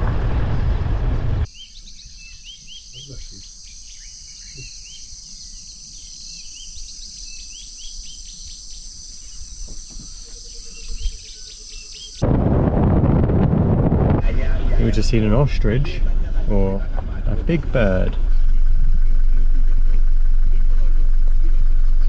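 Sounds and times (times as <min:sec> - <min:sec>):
car road noise: 0:00.0 - 0:01.5, 0:12.2 - 0:22.0
birds chirping: 0:00.0 - 0:12.4, 0:14.1 - 0:22.0
high-pitched insect chorus: 0:01.5 - 0:12.2.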